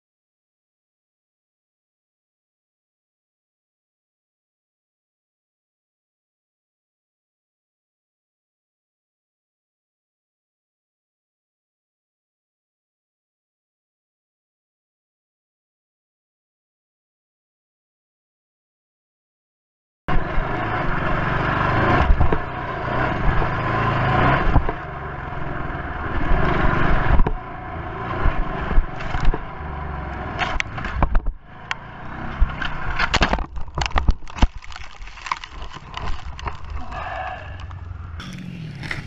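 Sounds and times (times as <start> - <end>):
dirt bike engine running hard: 20.1 - 34.1, 35.6 - 39.0
crash knocks and scrapes: 32.3 - 36.8.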